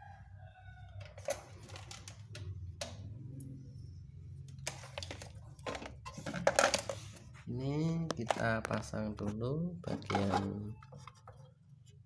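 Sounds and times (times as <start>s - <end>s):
rooster crowing: 0.0s - 1.5s
clicks and knocks of handling parts: 1.0s - 3.0s, 4.5s - 7.2s.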